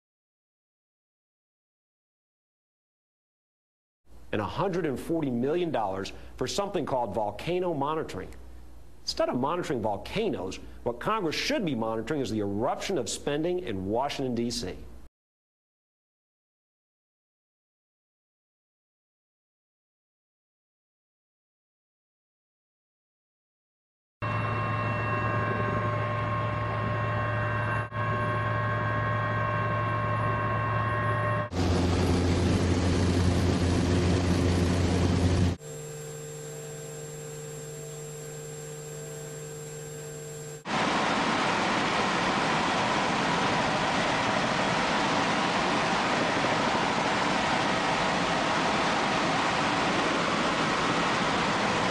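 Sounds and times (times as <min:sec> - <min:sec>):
aircraft engine drone: 0:04.4 - 0:06.8, 0:24.2 - 0:51.9
helicopter cabin noise: 0:24.3 - 0:35.6, 0:40.4 - 0:51.9.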